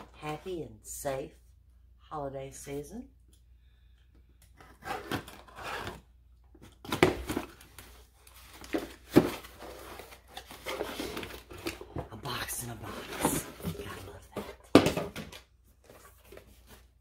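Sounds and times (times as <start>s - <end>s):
paper and cardboard rustling: 6.6s - 17.0s.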